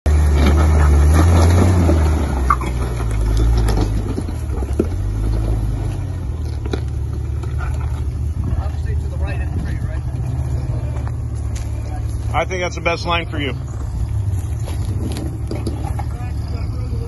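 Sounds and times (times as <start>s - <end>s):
car engine at low revs: 0.1s - 17.0s.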